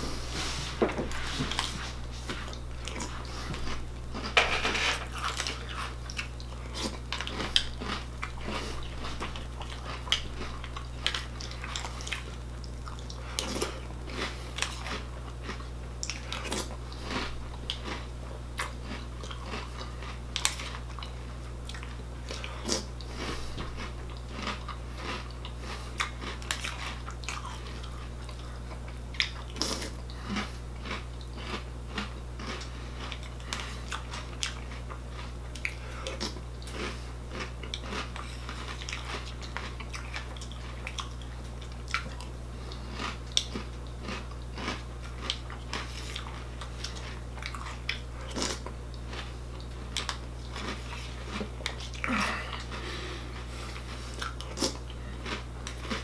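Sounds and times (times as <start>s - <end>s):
steady low hum: 0.0s - 56.0s
chewing crunchy cereal: 0.6s - 56.0s.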